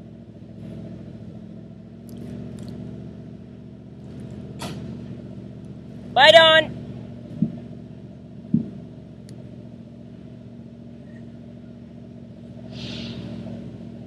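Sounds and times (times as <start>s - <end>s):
truck engine idling: 0.0s - 14.0s
short thump: 7.3s - 7.7s, 8.4s - 8.9s
brief hiss: 12.7s - 13.3s.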